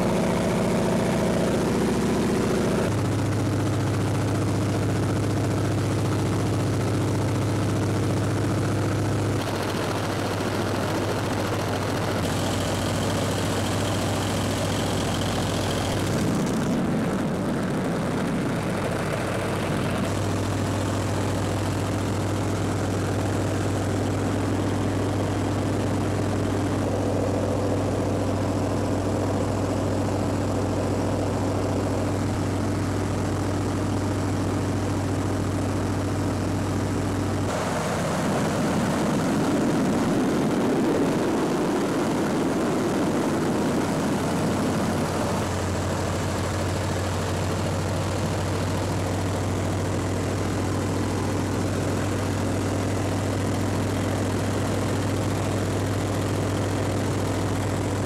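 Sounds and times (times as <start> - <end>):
propeller plane engine running: 0.0 - 58.0.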